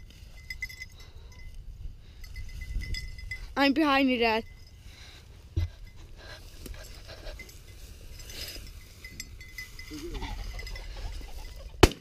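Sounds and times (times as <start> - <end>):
footsteps through dry grass: 4.4 - 11.8
shotgun blast: 11.8 - 12.0.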